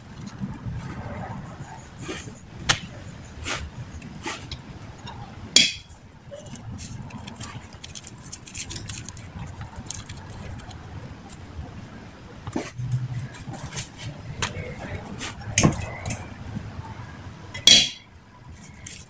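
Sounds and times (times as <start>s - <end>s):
hands tapping and rustling wrappers: 6.4s - 11.5s, 18.5s - 19.0s.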